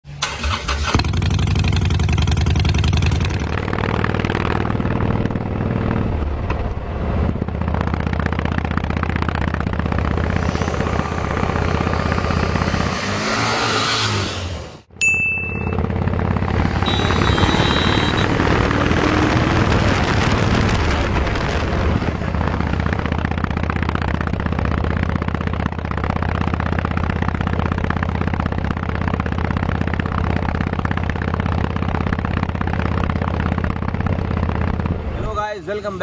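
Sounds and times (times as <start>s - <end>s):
motorcycle engine idling: 0.4s - 5.5s, 15.5s - 18.3s, 22.7s - 35.2s.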